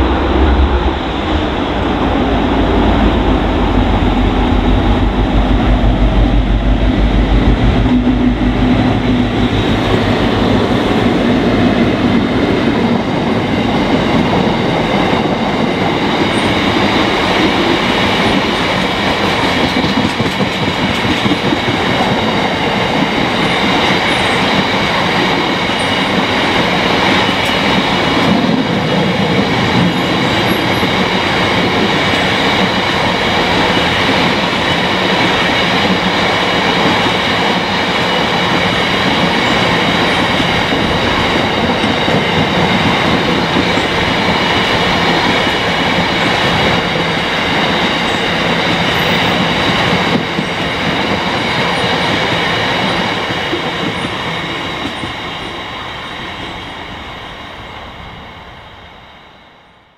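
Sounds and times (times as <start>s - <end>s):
steady high whine: 0.0s - 14.0s
train wheels on rails: 0.0s - 59.9s.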